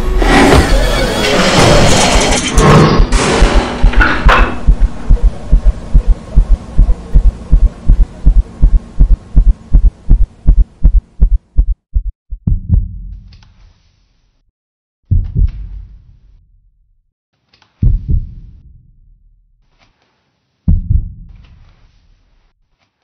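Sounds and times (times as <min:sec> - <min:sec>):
low hum: 0:02.4 - 0:13.0
heartbeat thumps: 0:03.0 - 0:13.3, 0:15.1 - 0:16.1, 0:17.8 - 0:18.9, 0:20.7 - 0:21.5.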